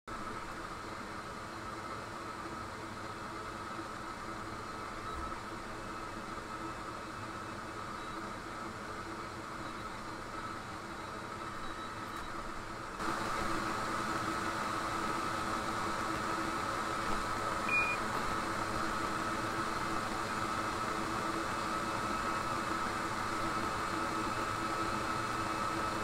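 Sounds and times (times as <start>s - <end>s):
short high beep: 17.7s - 18.0s.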